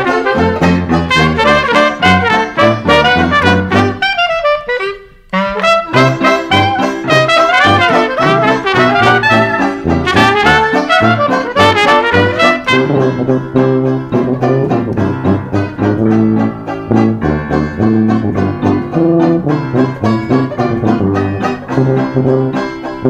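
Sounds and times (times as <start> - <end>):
brass melody over a beat: 0.0 - 23.0.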